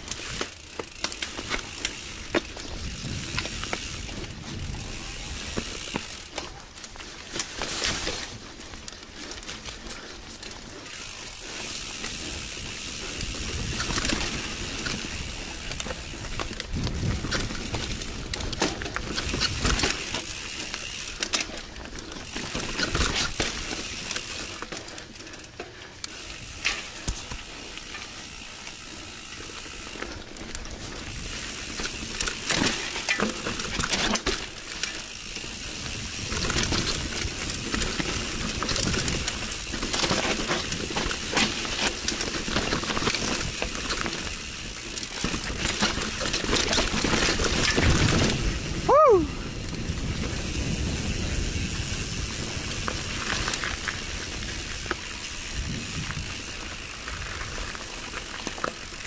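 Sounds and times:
bike rattling and clicking: 0.0 - 59.0
bike tyres on dirt and roots: 0.0 - 59.0
constant rushing noise: 0.0 - 59.0.

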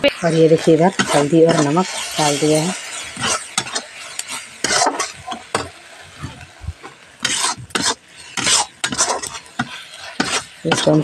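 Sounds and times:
spice paste sizzling in oil: 0.0 - 11.0
spatula scraping metal pan: 0.2 - 6.3, 7.2 - 11.0.

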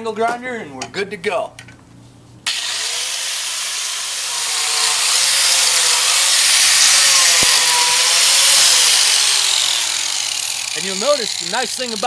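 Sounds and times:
angle grinder grinding wood: 2.5 - 12.0.

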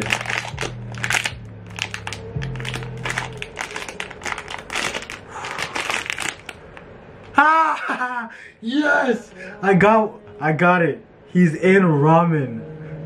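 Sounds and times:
foil bag crinkling and tearing: 0.0 - 6.8
low background music: 0.0 - 7.2, 9.1 - 13.0.

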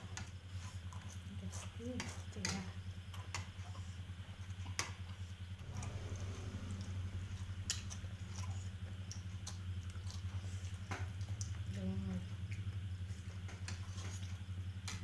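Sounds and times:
chewing: 0.0 - 15.0
low steady hum: 0.0 - 15.0.

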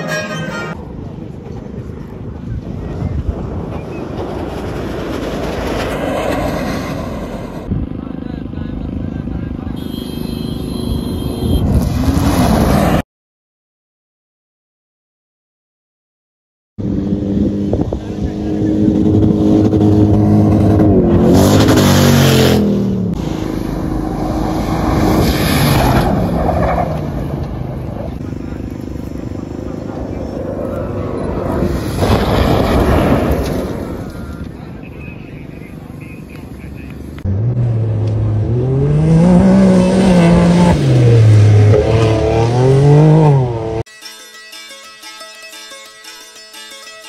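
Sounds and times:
vehicle passing rush: 0.0 - 13.0, 16.8 - 43.9
off-road vehicle engine revving: 16.8 - 35.0, 35.6 - 43.9.

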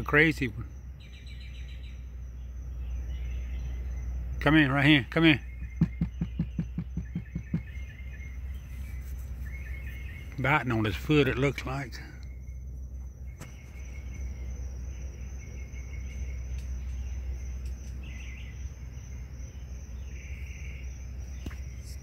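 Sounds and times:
insects trilling: 0.0 - 22.0
low hum: 5.4 - 22.0.

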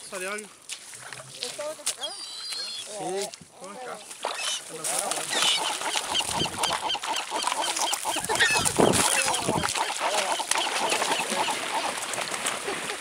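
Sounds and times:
gulls calling: 4.2 - 13.0
wings flapping: 4.9 - 13.0.

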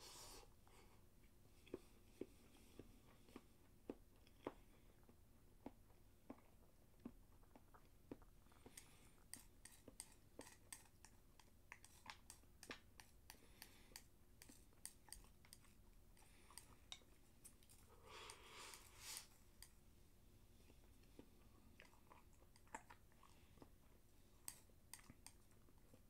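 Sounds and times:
soft chewing: 0.0 - 26.0
chopsticks clicking on a bowl: 24.5 - 25.4.

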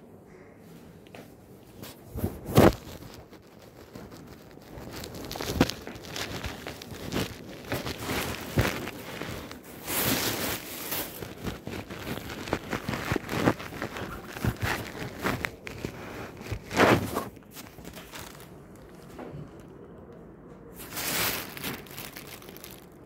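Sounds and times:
cloth rubbing on microphone: 1.8 - 18.4.

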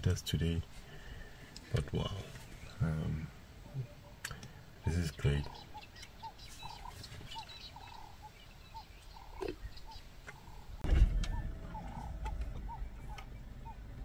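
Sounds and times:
low rumble: 10.7 - 14.0
animal chirping: 11.3 - 14.0.

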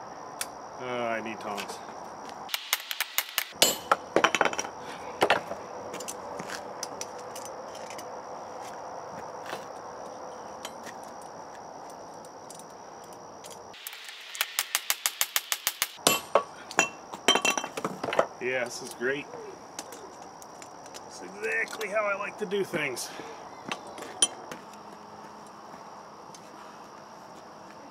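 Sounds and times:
hammer striking hot steel: 2.5 - 4.0, 14.3 - 16.9
light metallic clinks: 23.7 - 24.5.

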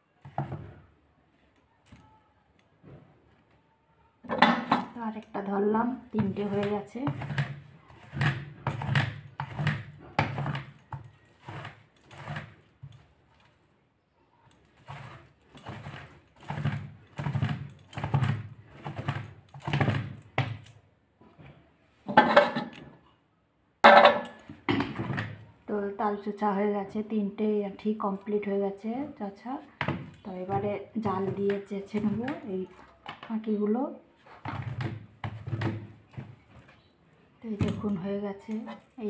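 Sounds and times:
voice: 4.2 - 7.2, 25.7 - 34.0, 37.4 - 39.0
seed scraping on wooden board: 6.0 - 13.5, 14.6 - 20.6, 29.6 - 32.9, 34.2 - 36.9.

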